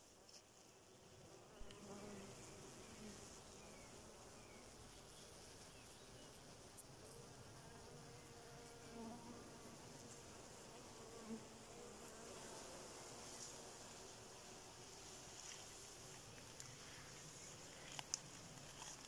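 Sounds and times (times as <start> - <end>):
bee swarm buzzing: 0.0 - 19.0
single bees droning past: 0.8 - 17.8.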